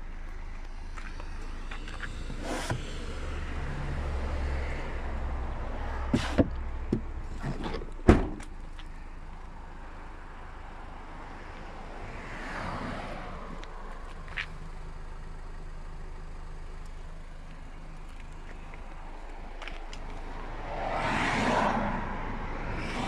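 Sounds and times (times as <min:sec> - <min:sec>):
car tailgate thudding shut: 0:07.6 - 0:08.5.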